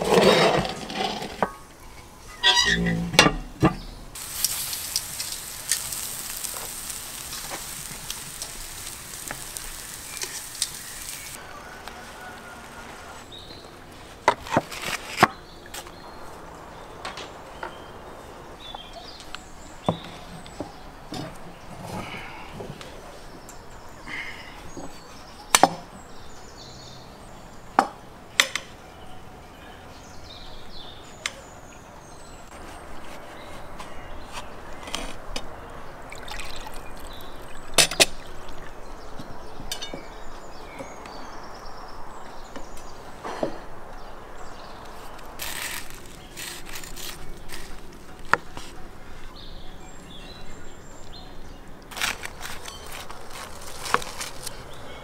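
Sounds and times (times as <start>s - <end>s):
liquid pouring into glasses: 36.1s - 38.4s.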